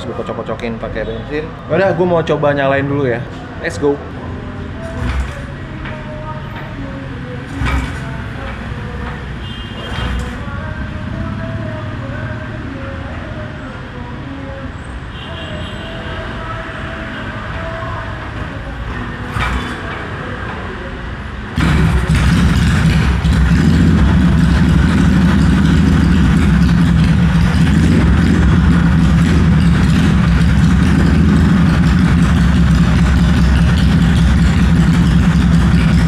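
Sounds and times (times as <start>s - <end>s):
motorcycle engine starting and running: 4.7s - 12.5s, 19.0s - 20.7s, 21.5s - 36.0s.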